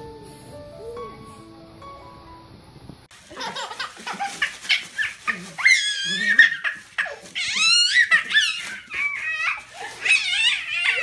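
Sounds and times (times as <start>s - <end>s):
wrapping paper crinkling: 3.1s - 11.0s
baby squealing: 4.1s - 11.0s.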